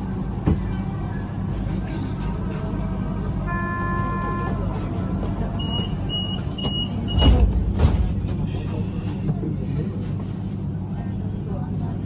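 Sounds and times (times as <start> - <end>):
low hum of standing tram: 0.0 - 12.0
tram door warning beeps: 3.4 - 7.6.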